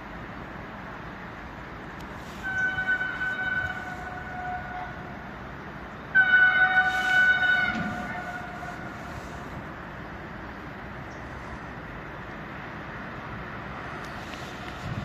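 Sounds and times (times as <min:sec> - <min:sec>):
locomotive horn blasts: 0:02.3 - 0:05.3, 0:06.1 - 0:09.2.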